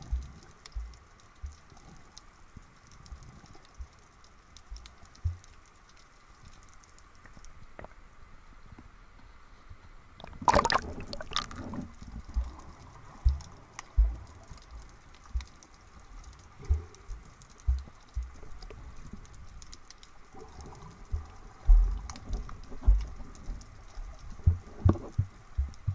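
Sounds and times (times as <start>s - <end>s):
dull underwater thumps: 0.0s - 1.6s, 10.2s - 12.6s, 13.2s - 15.6s, 16.6s - 18.4s, 21.1s - 23.2s, 24.4s - 25.9s
faint fine crackle: 0.0s - 25.9s
water splashing: 10.2s - 25.9s.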